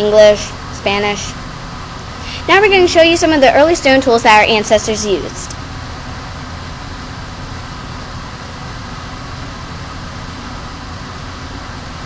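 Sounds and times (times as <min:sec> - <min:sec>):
low hum: 0:00.0 - 0:12.0
person speaking: 0:02.2 - 0:05.6.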